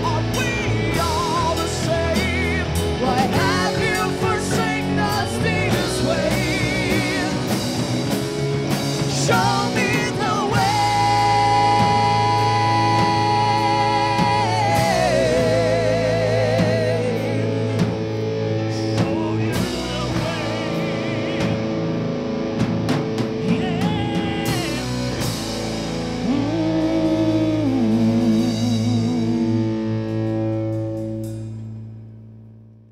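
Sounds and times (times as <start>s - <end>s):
person singing: 0.0s - 22.2s, 23.2s - 30.4s
heavy metal band playing live: 0.0s - 32.2s.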